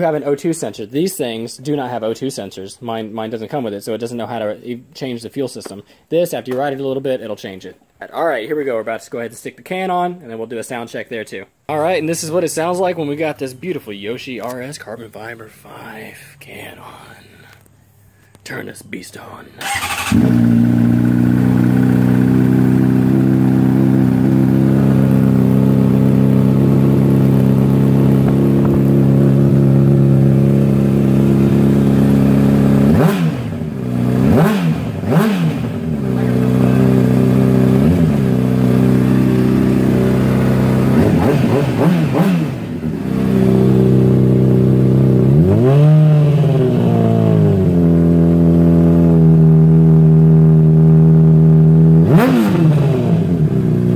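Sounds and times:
motorcycle engine idling and revving: 0:19.6 - 0:53.9.

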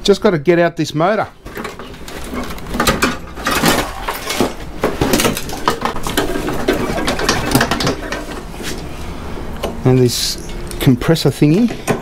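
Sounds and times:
metal and plastic parts clattering: 0:01.5 - 0:08.5.

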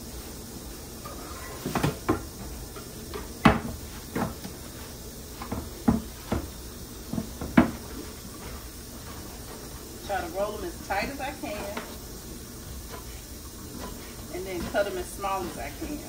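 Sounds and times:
cutting board knocking on counter: 0:03.1 - 0:04.6, 0:05.4 - 0:06.5, 0:07.1 - 0:07.8.

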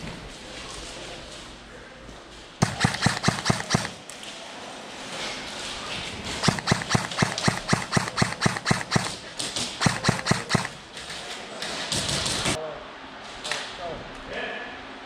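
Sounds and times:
sharp knocks: 0:02.6 - 0:04.0, 0:06.4 - 0:09.2, 0:09.8 - 0:10.8.

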